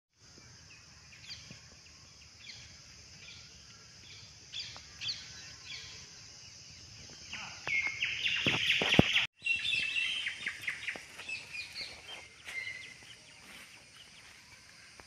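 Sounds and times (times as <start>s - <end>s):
high outdoor hiss: 0.2s - 15.0s.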